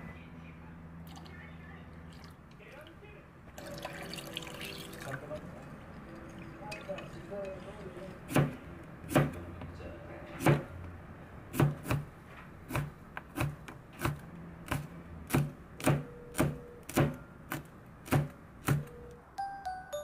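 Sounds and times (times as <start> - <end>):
knife chopping on cutting board: 8.3 - 9.4, 11.5 - 12.1, 12.7 - 18.9.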